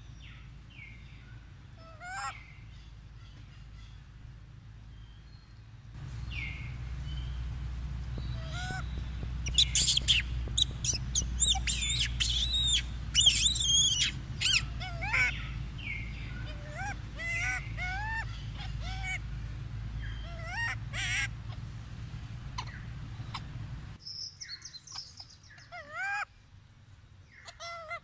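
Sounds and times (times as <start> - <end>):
low rumble: 0.0 - 24.0
monkeys squealing: 1.8 - 2.4, 8.4 - 8.8, 9.4 - 15.6, 16.2 - 19.2, 20.1 - 21.6, 22.5 - 23.6, 27.5 - 28.0
squeaky monkey calls: 1.8 - 2.4, 8.3 - 19.2, 20.0 - 21.6, 22.5 - 23.6, 24.9 - 26.3, 27.3 - 28.0.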